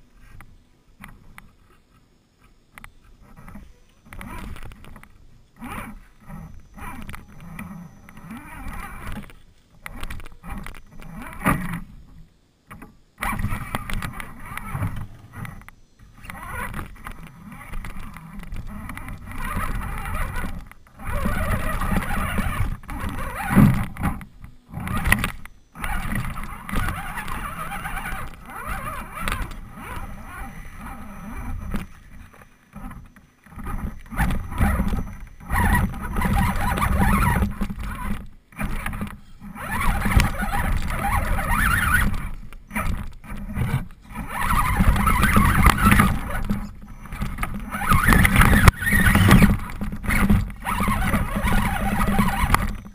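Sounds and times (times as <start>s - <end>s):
rc truck motor whirring: 1.0s - 52.9s.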